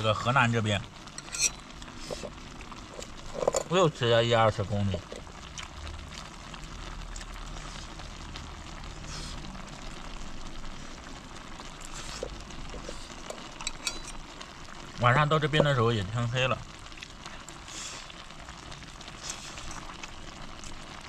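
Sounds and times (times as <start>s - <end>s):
shrimp simmering and sizzling in pan: 0.0s - 21.0s.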